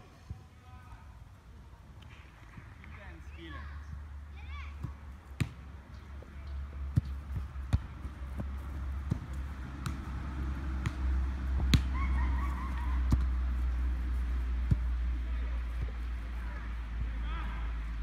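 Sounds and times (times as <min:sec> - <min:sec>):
foot kicking football: 0:04.6 - 0:17.6.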